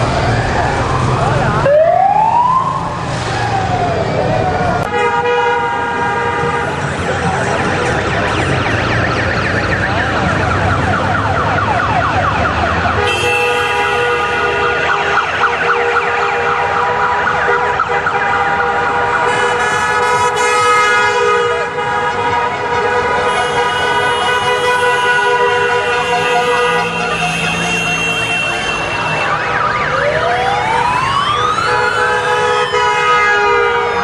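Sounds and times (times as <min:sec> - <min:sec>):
motorcycle engines: 0:00.0 - 0:34.0
motorcycle horns: 0:13.0 - 0:29.6.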